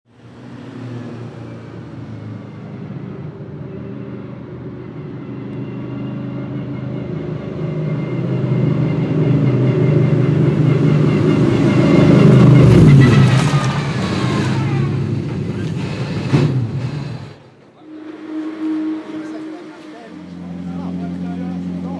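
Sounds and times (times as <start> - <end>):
race car engine at low revs: 6.5 - 21.9.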